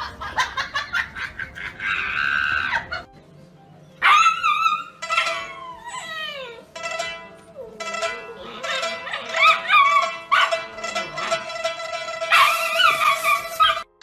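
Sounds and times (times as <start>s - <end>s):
background music: 0.0s - 14.0s
puppy howling: 4.0s - 6.7s.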